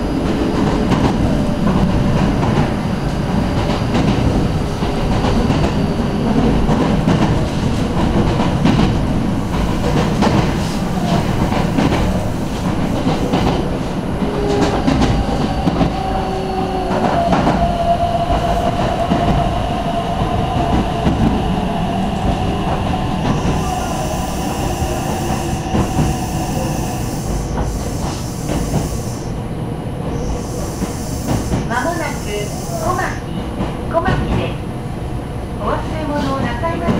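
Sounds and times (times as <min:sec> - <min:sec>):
train wheels rumbling on rail: 0:00.0 - 0:36.9.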